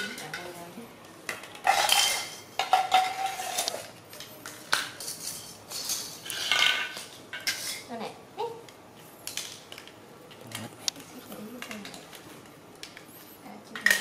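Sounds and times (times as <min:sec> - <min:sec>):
plastic toys clattering on tile floor: 0:01.3 - 0:07.9, 0:09.2 - 0:13.1, 0:13.7 - 0:14.0.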